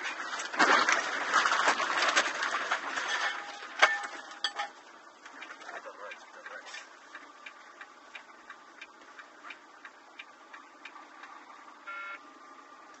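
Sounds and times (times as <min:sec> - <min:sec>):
short electronic beep: 0:11.9 - 0:12.2.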